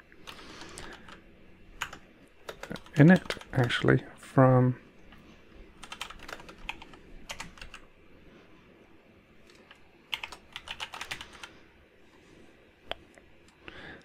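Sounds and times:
typing on computer keyboard: 0:00.2 - 0:01.2, 0:01.8 - 0:03.8, 0:05.8 - 0:07.8, 0:09.5 - 0:11.5.

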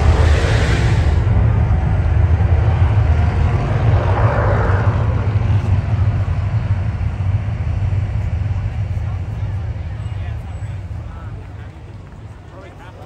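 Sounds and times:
rushing swell: 0:00.0 - 0:08.1
deep steady rumbling: 0:00.0 - 0:13.0.

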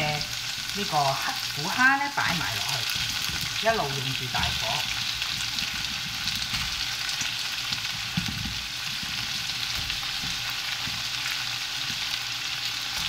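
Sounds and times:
shrimp sizzling in oil: 0:00.0 - 0:13.0.

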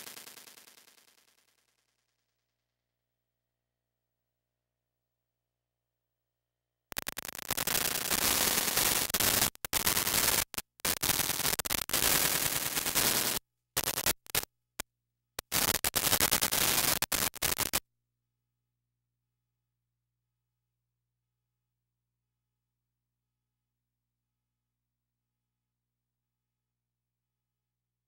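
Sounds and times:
harsh static noise: 0:00.0 - 0:01.4, 0:06.9 - 0:14.5, 0:15.4 - 0:17.8.

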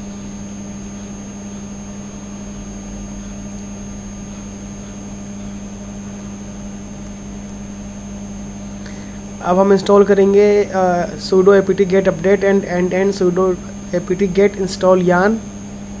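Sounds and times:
faint high-pitched whines: 0:00.0 - 0:16.0
low electrical hum: 0:00.0 - 0:16.0
constant hiss: 0:07.0 - 0:16.0.

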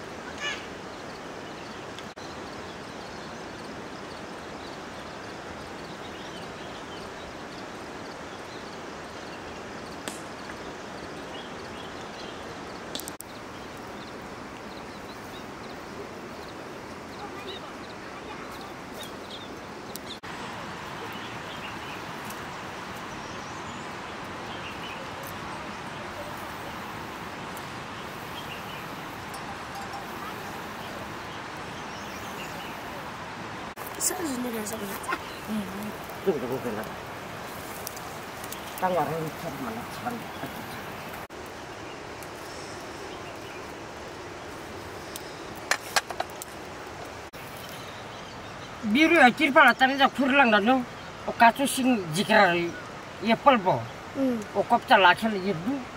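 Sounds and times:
steady hiss: 0:00.0 - 0:55.9
faint bird chirps: 0:13.2 - 0:41.2.

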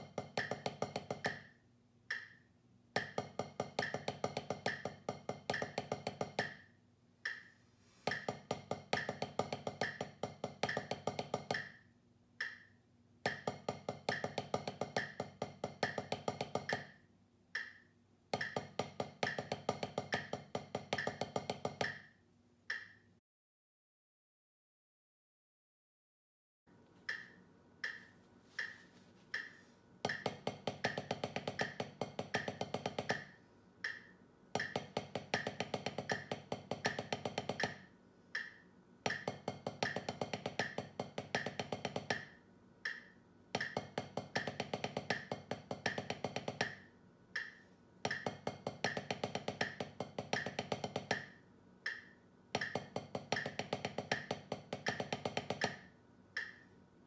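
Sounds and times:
drumsticks on practice pad: 0:00.0 - 0:11.8, 0:12.4 - 0:17.0, 0:17.6 - 0:23.1, 0:27.1 - 0:56.7
metronome clicking: 0:02.1 - 0:02.4, 0:07.2 - 0:08.3, 0:12.4 - 0:15.2, 0:17.5 - 0:20.4, 0:22.7 - 0:23.0, 0:27.1 - 0:28.8, 0:29.4 - 0:37.8, 0:38.4 - 0:46.8, 0:47.4 - 0:51.3, 0:51.9 - 0:55.8, 0:56.4 - 0:56.7.

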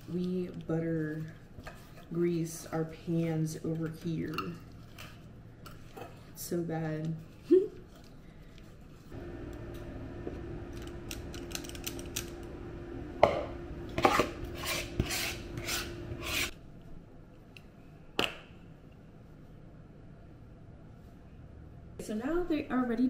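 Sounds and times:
steady low hum: 0:08.2 - 0:17.3.

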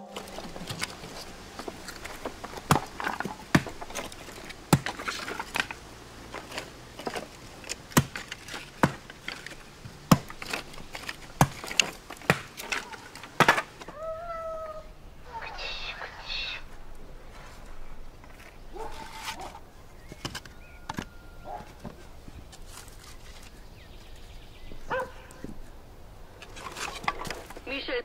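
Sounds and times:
firewood pieces knocking: 0:00.0 - 0:14.6, 0:16.7 - 0:24.1, 0:24.7 - 0:27.7.

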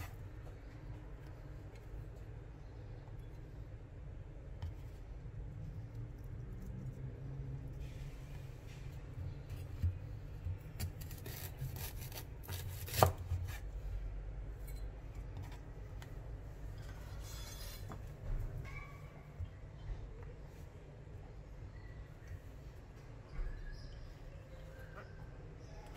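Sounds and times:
knife slicing ginger root: 0:09.5 - 0:13.7.

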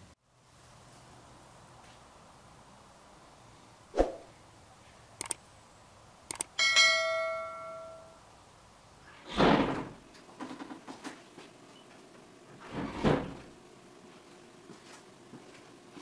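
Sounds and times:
whoosh: 0:03.9 - 0:04.3
mouse double-clicks: 0:05.2 - 0:05.4, 0:06.3 - 0:06.5
notification bell ding: 0:06.6 - 0:08.2.

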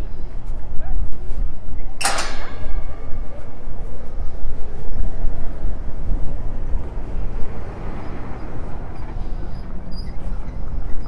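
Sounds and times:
van driving past: 0:03.6 - 0:11.0.

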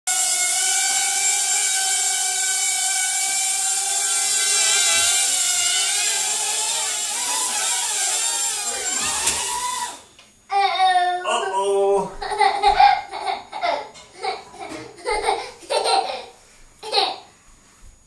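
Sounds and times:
toy drone propellers whining: 0:00.1 - 0:10.1.

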